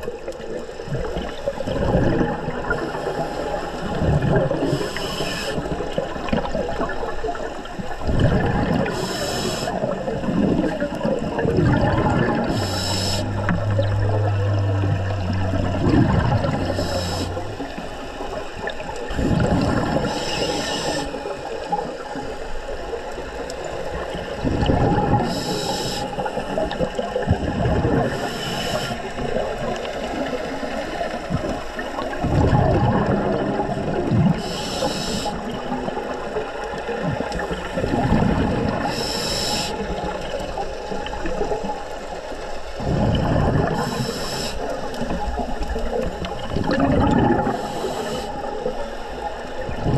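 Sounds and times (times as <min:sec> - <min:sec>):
underwater exhaled bubbles: 0:00.0 - 0:49.9
regulator inhale hiss: 0:04.6 - 0:05.8, 0:08.9 - 0:09.9, 0:12.4 - 0:15.8, 0:16.4 - 0:17.9, 0:20.0 - 0:21.3, 0:25.2 - 0:26.6, 0:28.1 - 0:29.2, 0:34.4 - 0:35.5, 0:38.8 - 0:39.9, 0:43.8 - 0:44.9, 0:47.5 - 0:49.0.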